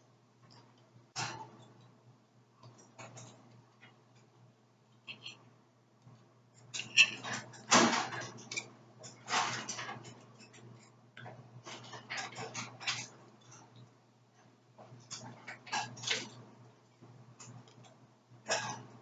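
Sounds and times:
knife and fork scraping plate: 6.6s - 7.6s.

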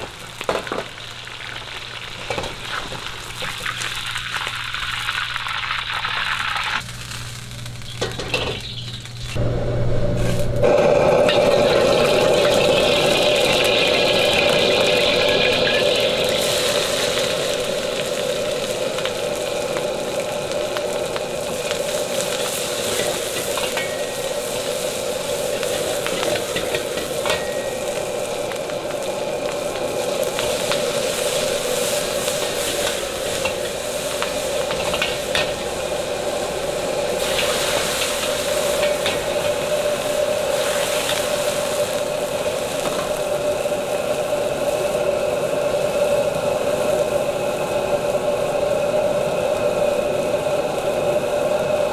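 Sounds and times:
vegetables sizzling in a wok: 0.0s - 51.9s
metal ladle scraping wok: 22.4s - 28.0s, 37.2s - 39.7s.

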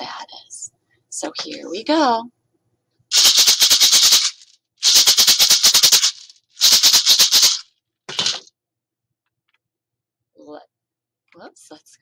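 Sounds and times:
maraca rattling: 3.1s - 8.4s.

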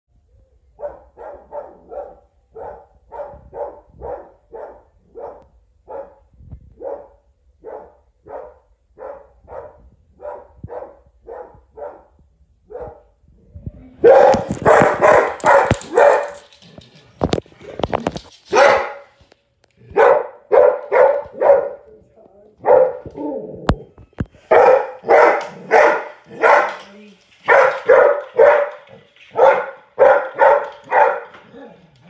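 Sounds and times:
dog barking: 0.8s - 13.1s, 14.0s - 16.5s, 18.5s - 19.2s, 19.9s - 21.9s, 22.6s - 23.4s, 24.5s - 26.8s, 27.4s - 31.5s.

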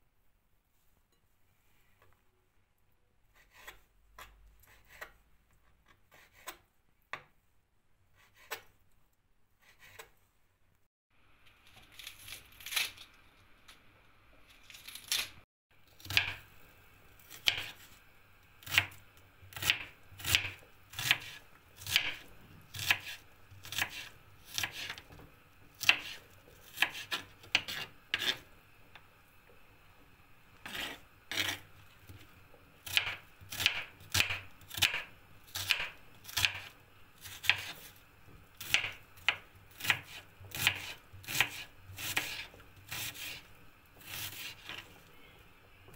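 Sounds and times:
knife chopping on cutting board: 17.3s - 17.8s, 18.6s - 25.2s, 25.8s - 28.4s, 30.6s - 32.2s, 32.8s - 37.9s, 38.6s - 43.4s, 44.0s - 44.8s.

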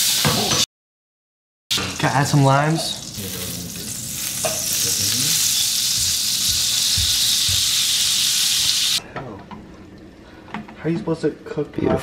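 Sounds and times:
butter sizzling in a frying pan: 1.7s - 9.0s.

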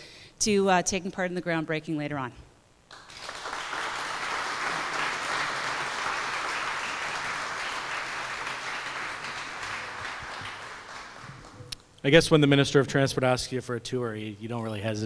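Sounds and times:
audience applauding: 2.9s - 11.7s.

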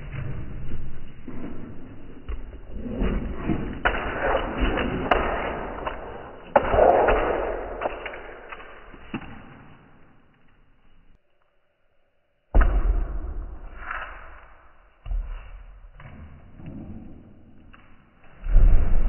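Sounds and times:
puppy running on hard floor: 0.0s - 11.1s.

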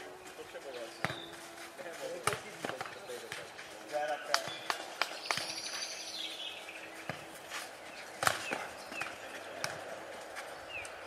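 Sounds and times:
ball kicked and bouncing: 1.0s - 1.4s, 2.2s - 3.6s, 4.3s - 5.7s, 7.0s - 7.4s, 8.2s - 10.5s.

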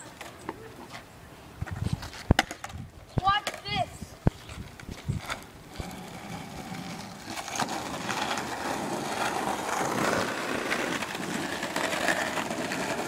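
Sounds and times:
skateboard wheels rolling on pavement: 0.0s - 13.0s.

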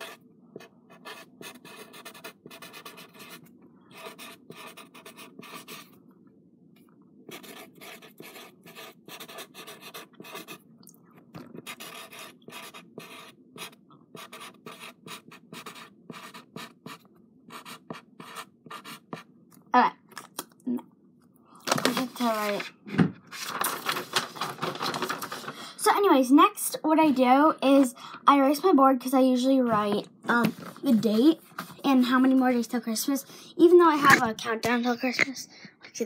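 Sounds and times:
felt-tip marker writing: 0.9s - 5.9s, 7.3s - 10.6s, 11.4s - 19.2s.

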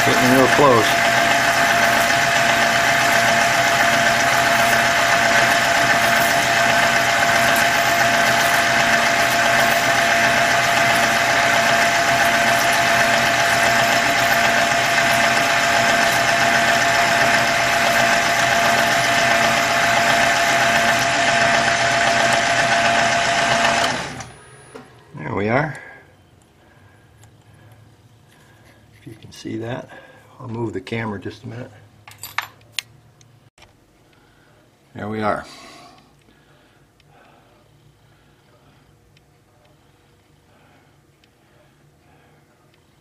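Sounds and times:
milling machine cutter whine: 0.0s - 24.9s
motor hum: 0.0s - 25.1s.

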